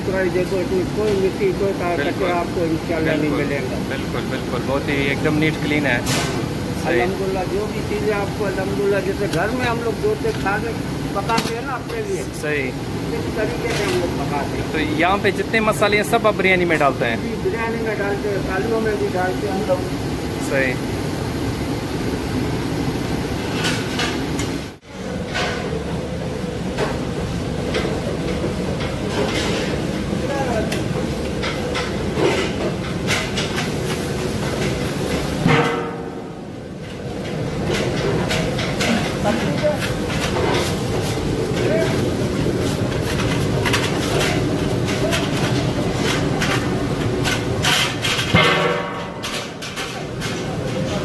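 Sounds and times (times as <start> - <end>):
metal utensils clanking on pots: 13.2 - 16.9, 27.6 - 51.0.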